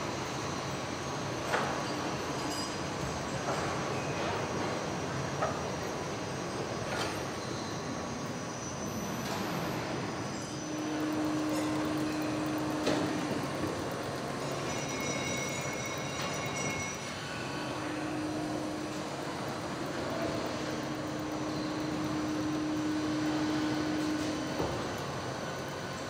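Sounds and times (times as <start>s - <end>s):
factory machinery rumble and hiss: 0.0s - 26.0s.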